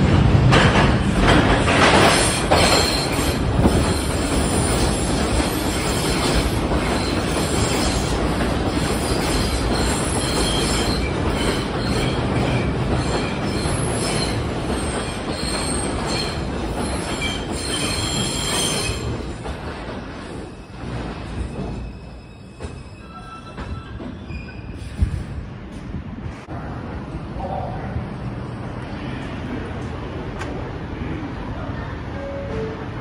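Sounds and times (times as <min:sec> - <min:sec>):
rail clacks: 0:00.0 - 0:25.9
train wheels rumbling on rail: 0:00.0 - 0:33.0
high wheel squeal: 0:20.5 - 0:25.0.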